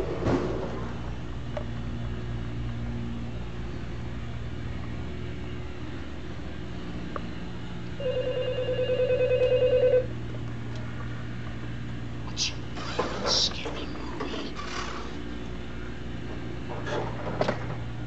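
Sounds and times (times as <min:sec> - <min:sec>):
steady low hum: 0:00.0 - 0:18.0
telephone ringing: 0:08.0 - 0:10.1.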